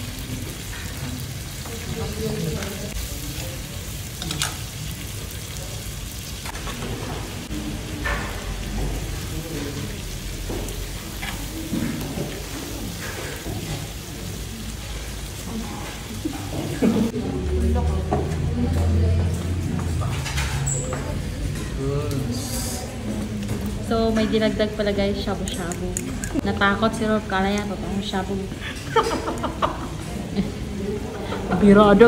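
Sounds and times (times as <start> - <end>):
meat sizzling on a grill pan: 0.0 - 16.7
metal tongs clicking on pan: 4.2 - 4.6, 25.4 - 26.4.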